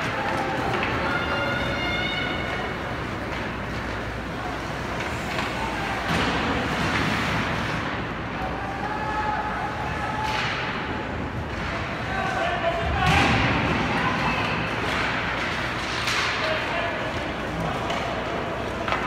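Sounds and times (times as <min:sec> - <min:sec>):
murmur of crowd voices: 0:00.0 - 0:19.0.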